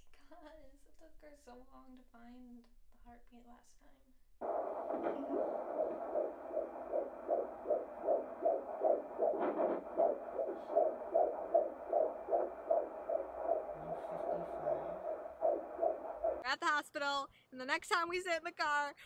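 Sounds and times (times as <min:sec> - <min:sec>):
fetal heartbeat through speaker: 0:04.4 - 0:16.5.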